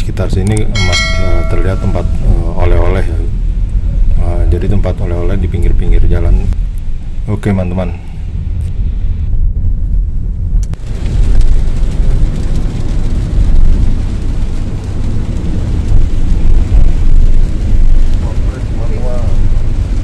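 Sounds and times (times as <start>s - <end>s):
vehicle cabin rumble: 0.0s - 20.0s
click: 10.6s - 10.8s.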